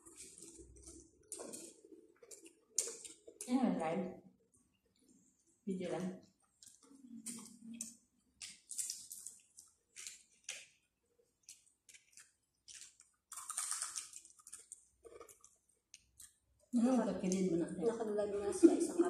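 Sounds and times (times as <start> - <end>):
eating sounds: 0.0 - 3.6, 6.2 - 17.4
plastic wrappers rustling: 0.0 - 3.6, 11.9 - 15.4.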